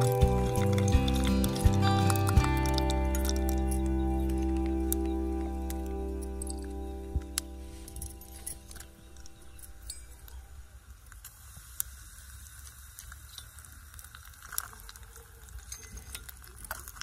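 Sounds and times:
small crackles and pops: 0.0s - 17.0s.

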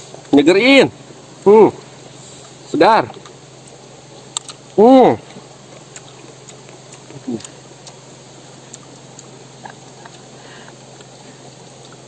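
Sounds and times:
close-up chewing: 4.2s - 4.7s, 5.3s - 12.0s
wet mouth clicks and smacks: 4.3s - 4.6s
person humming: 7.2s - 7.6s.

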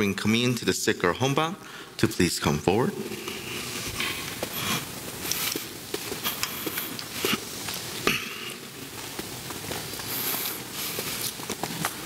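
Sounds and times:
footsteps on tiled floor: 3.0s - 12.0s.

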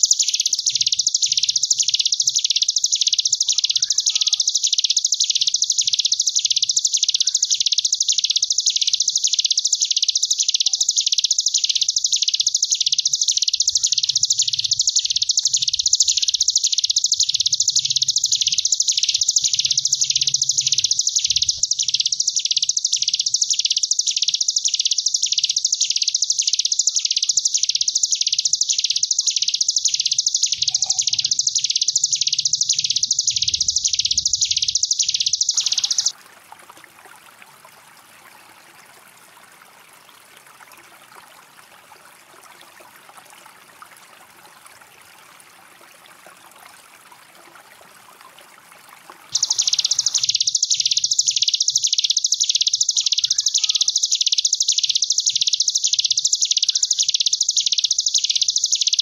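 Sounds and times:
bird high buzzing trill: 0.0s - 36.2s, 49.3s - 59.0s.

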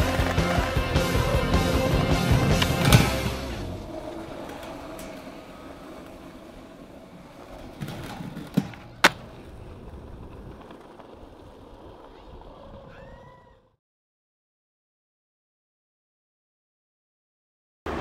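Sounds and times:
skateboard wheels rolling on concrete: 0.0s - 13.8s
skateboard slapping down: 2.4s - 12.5s.

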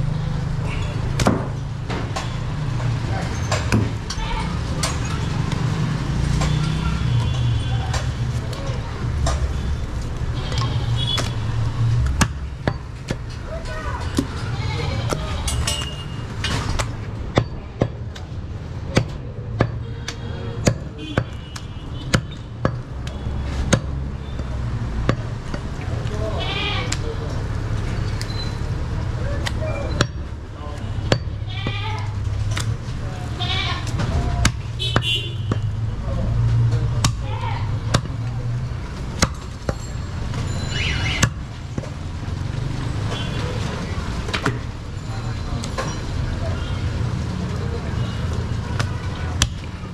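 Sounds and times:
low traffic rumble: 0.0s - 49.9s
cleaver chopping on wooden block: 18.9s - 25.7s, 31.0s - 31.8s, 37.9s - 38.2s.

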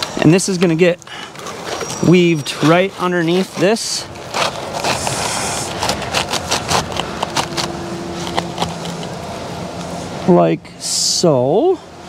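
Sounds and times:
shingles scraping and crackling: 0.0s - 9.2s
outdoor background noise: 0.0s - 12.0s.

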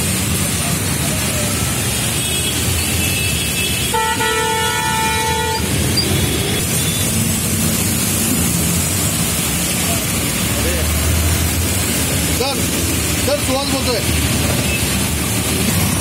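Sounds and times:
traffic on a wet road: 0.0s - 16.0s
vehicle horn honking: 2.1s - 7.2s.

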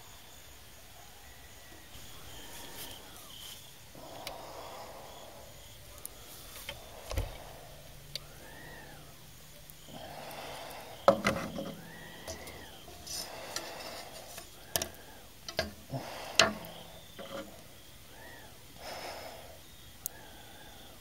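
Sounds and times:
faint rising and falling call: 1.2s - 11.0s, 11.6s - 15.3s, 16.0s - 18.7s
metal scraping on wooden boards: 11.0s - 15.8s, 16.4s - 17.6s.

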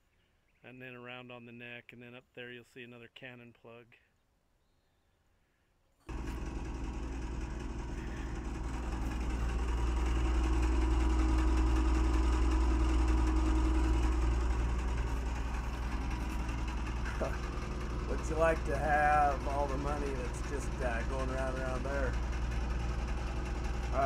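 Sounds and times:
fuel pump engine running: 6.1s - 24.0s.

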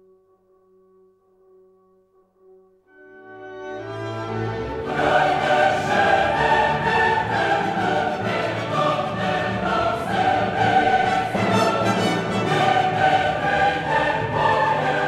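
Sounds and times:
music with choral singing: 3.6s - 15.0s.

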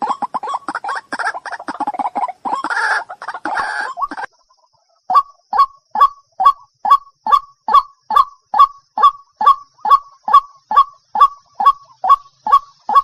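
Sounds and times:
waterhen calling harsh notes: 0.0s - 4.3s, 5.1s - 13.0s.

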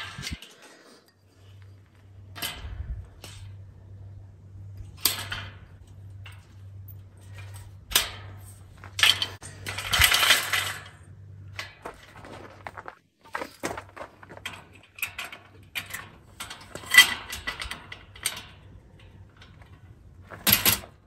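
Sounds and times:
low hum: 0.0s - 21.0s
metal table clanking and rattling: 7.3s - 11.0s, 13.6s - 21.0s.

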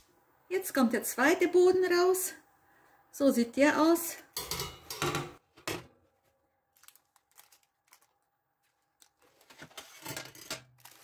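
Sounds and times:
baking paper crinkling: 6.6s - 11.0s.

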